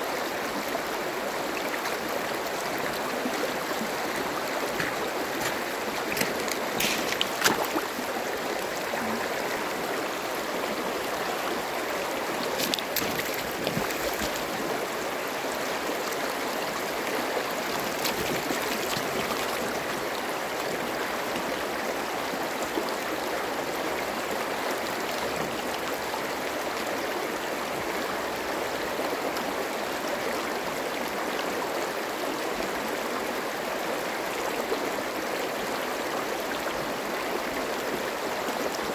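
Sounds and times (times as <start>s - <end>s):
river rushing over pebbles: 0.0s - 23.2s.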